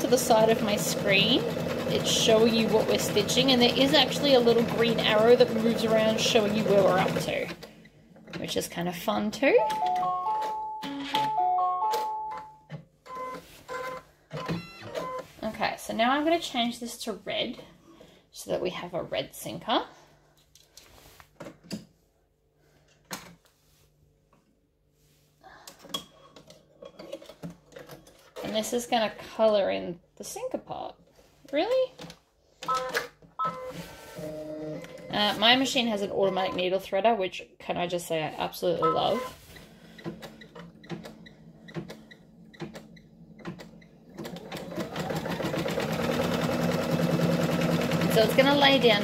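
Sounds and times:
embroidery machine stitching: 0.0 - 7.7, 40.0 - 49.0.

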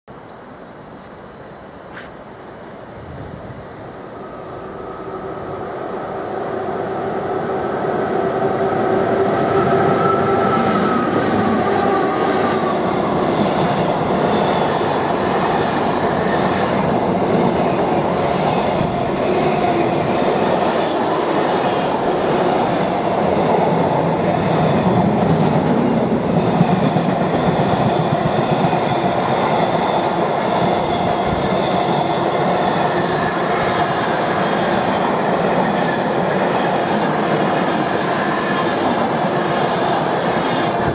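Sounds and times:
electric locomotive whine: 0.3 - 40.9.

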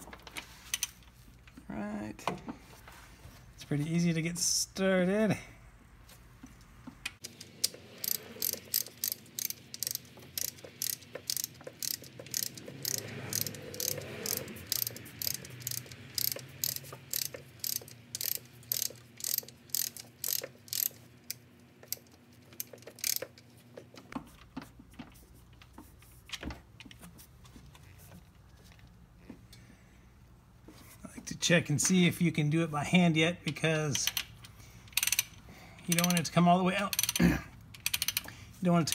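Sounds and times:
hand ratchet clicking: 7.1 - 23.4, 34.0 - 38.9.

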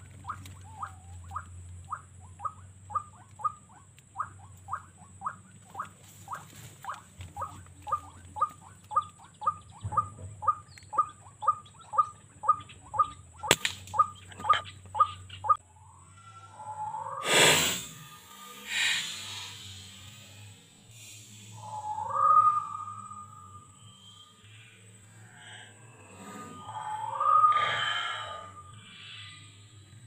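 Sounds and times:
bird calling repeated notes: 0.0 - 15.6, 21.4 - 24.6
sharp click: 13.4 - 14.0.

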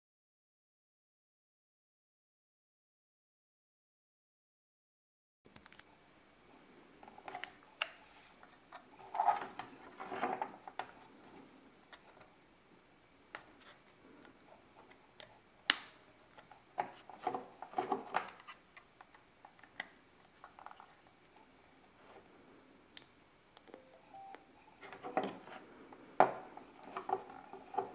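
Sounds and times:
plastic handling noises: 7.0 - 12.4, 16.2 - 21.4, 24.8 - 27.9.

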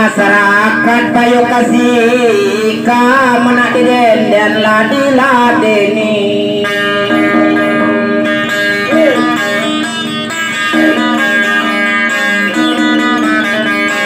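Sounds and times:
plucked solo guitar: 0.0 - 14.0.

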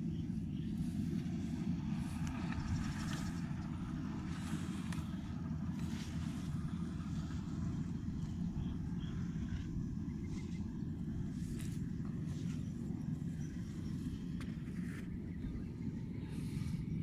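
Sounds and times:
wind buffeting microphone: 0.0 - 17.0
rustling in grass: 0.7 - 7.8, 10.2 - 15.2.

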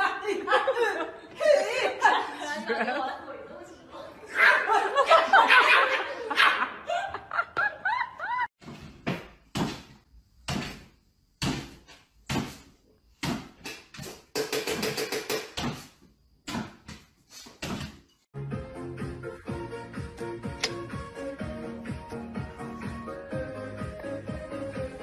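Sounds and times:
person laughing: 4.8 - 8.5.

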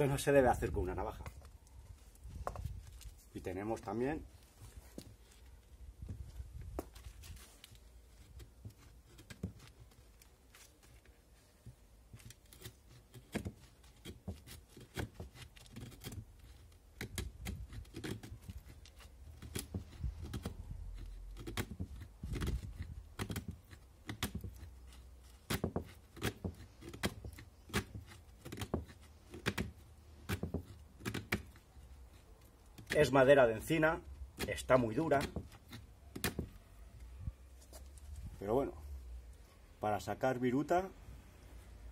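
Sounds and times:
knife blade scraping wood: 6.6 - 11.4, 12.1 - 38.3.

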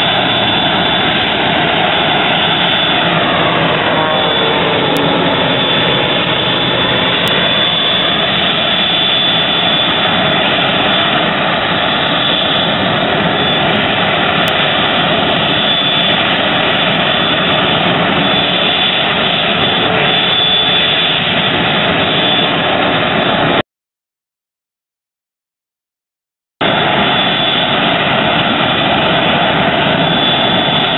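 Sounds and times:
jet engine idling with whine: 0.0 - 23.6, 26.6 - 30.9.

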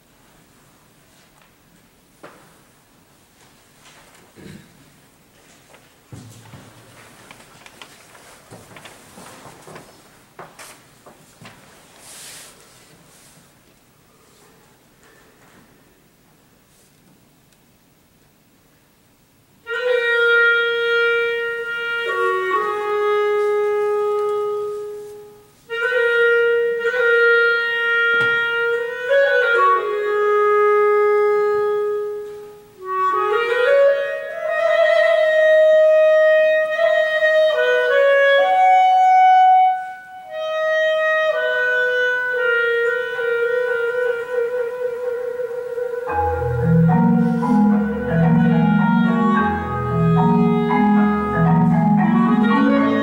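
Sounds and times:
clarinet playing long notes: 19.6 - 53.0.

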